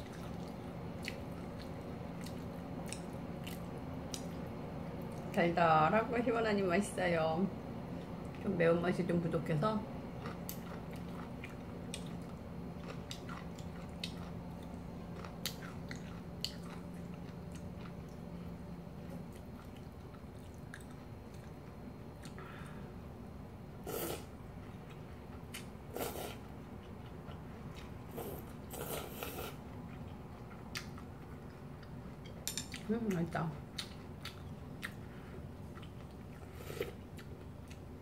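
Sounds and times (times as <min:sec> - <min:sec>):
chewing: 0:00.0 - 0:04.4, 0:10.2 - 0:18.3, 0:19.3 - 0:21.6, 0:24.8 - 0:32.9, 0:33.7 - 0:37.9
low steady hum: 0:00.0 - 0:38.0
slurping noodles: 0:23.8 - 0:24.3, 0:25.9 - 0:26.4, 0:28.1 - 0:29.6.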